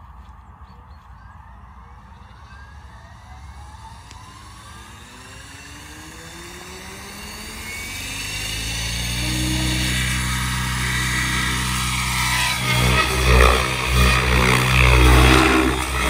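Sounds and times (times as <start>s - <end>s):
electric motor whine rising: 1.5s - 16.0s.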